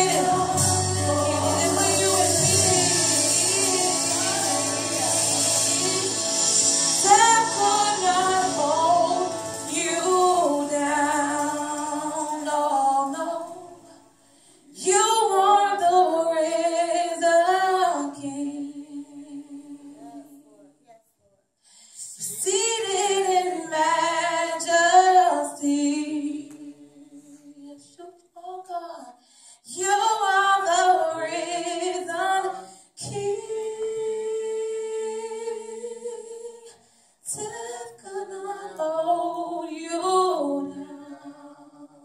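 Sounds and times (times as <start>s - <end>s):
woman singing unaccompanied: 0.0s - 6.2s, 7.0s - 13.9s, 14.8s - 19.8s.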